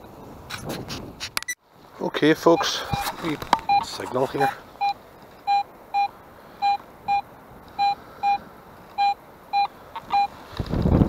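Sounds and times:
rustling noise: 0:00.1 - 0:01.6, 0:02.8 - 0:04.5, 0:10.0 - 0:11.0
metal detector beeps: 0:02.6 - 0:03.1, 0:03.7 - 0:08.4, 0:09.0 - 0:10.3.

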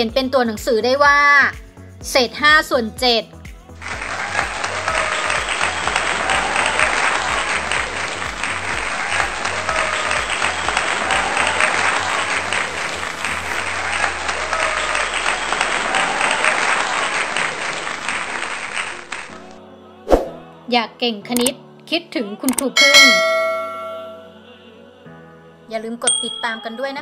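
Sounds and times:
background music with low beat: 0:00.0 - 0:14.2
dense applause: 0:03.8 - 0:19.6.

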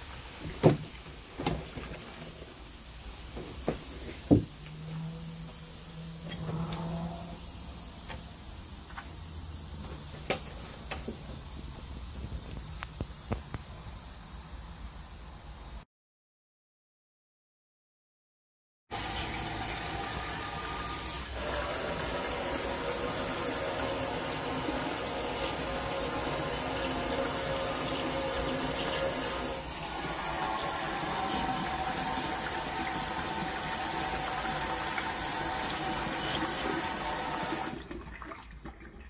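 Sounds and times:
water trickling: 0:18.9 - 0:39.0.

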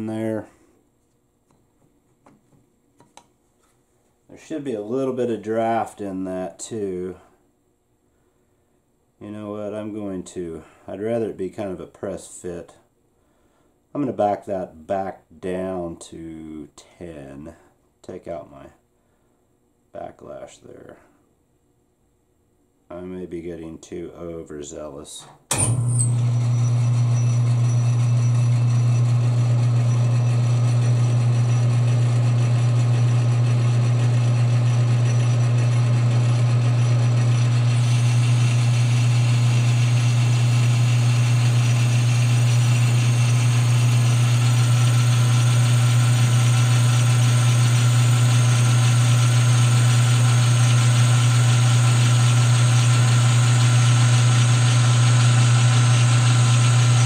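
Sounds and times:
metal lathe running: 0:26.0 - 0:57.0.

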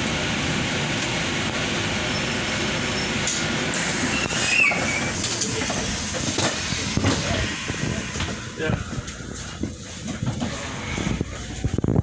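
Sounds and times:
bus engine and road noise: 0:00.0 - 0:12.0
short wavering squeal: 0:04.0 - 0:05.2
rattles and knocks: 0:05.2 - 0:11.9.

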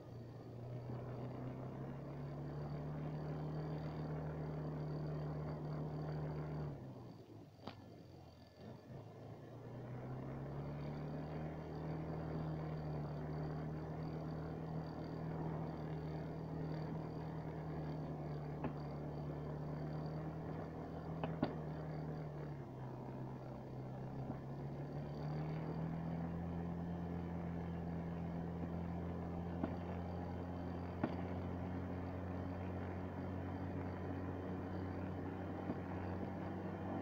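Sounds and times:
snowmobile engine running: 0:11.6 - 0:37.0
short knocks from riding: 0:21.2 - 0:21.6, 0:31.0 - 0:31.3.

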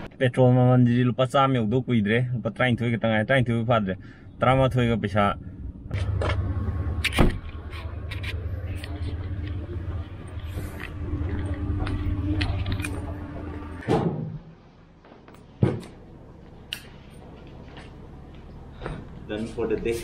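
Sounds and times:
vehicle engine rumbling: 0:03.4 - 0:20.0.

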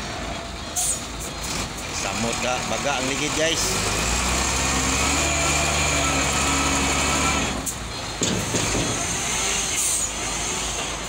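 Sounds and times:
diesel engine running: 0:00.0 - 0:11.0
air-brake hisses: 0:09.0 - 0:10.9.

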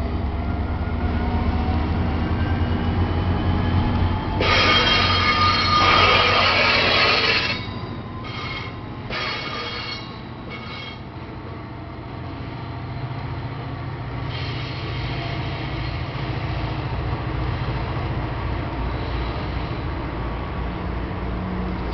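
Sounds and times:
train rumble: 0:00.0 - 0:21.9
train wheels squealing: 0:02.1 - 0:11.1.

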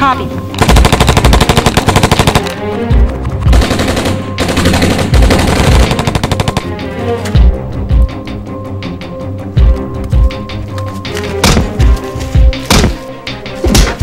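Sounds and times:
film score music: 0:00.0 - 0:14.0
automatic gunfire: 0:00.6 - 0:02.5, 0:03.5 - 0:06.7.

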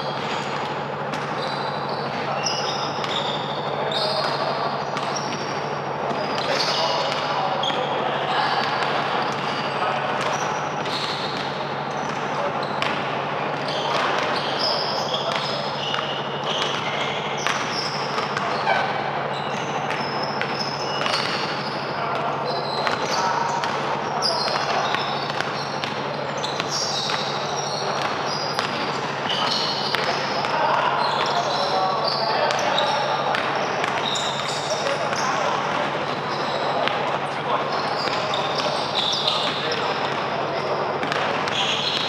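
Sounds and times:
basketball bouncing on court: 0:00.0 - 0:37.1, 0:40.9 - 0:42.0
players' background noise: 0:00.0 - 0:42.0
sneakers squeaking: 0:00.0 - 0:42.0
basketball bouncing: 0:08.6 - 0:21.8, 0:32.4 - 0:37.0, 0:41.0 - 0:42.0.

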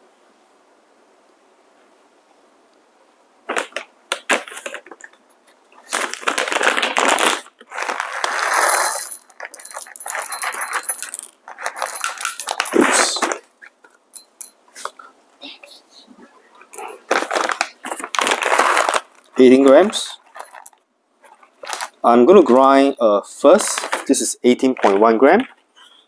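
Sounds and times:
foil bag crinkling: 0:03.5 - 0:14.0, 0:16.8 - 0:22.7, 0:23.5 - 0:26.0
coffee beans clattering into cup: 0:07.8 - 0:13.2.

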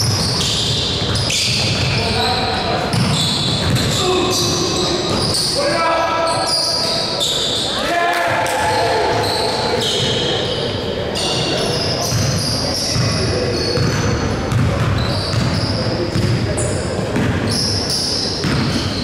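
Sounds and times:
basketball bouncing on court: 0:00.0 - 0:02.1, 0:02.9 - 0:04.0, 0:12.0 - 0:17.6, 0:18.4 - 0:19.0
sneakers squeaking: 0:00.0 - 0:19.0
players' voices: 0:01.8 - 0:18.7.

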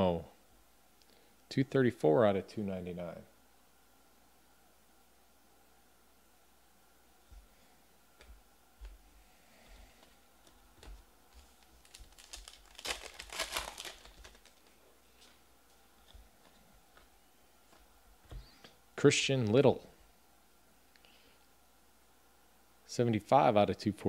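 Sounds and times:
cards being handled: 0:10.0 - 0:15.4
card pack wrapper crinkling: 0:10.8 - 0:15.4.

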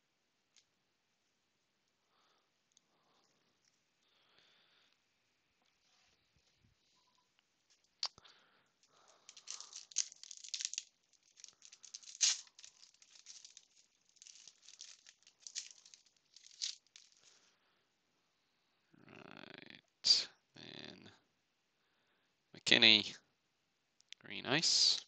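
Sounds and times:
foil wrapper snapping: 0:08.9 - 0:17.3
foil wrapper crinkling: 0:08.9 - 0:17.4
foil wrapper tearing: 0:08.9 - 0:17.4.

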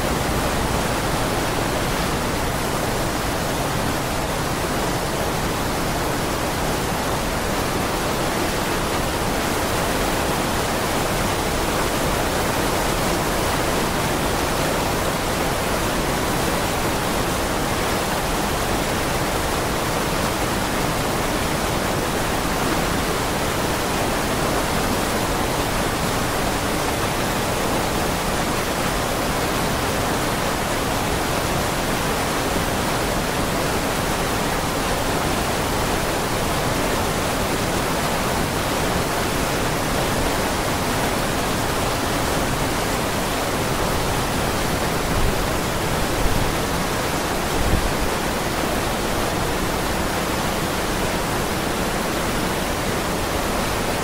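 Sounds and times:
waterfall roaring: 0:00.0 - 0:54.0.

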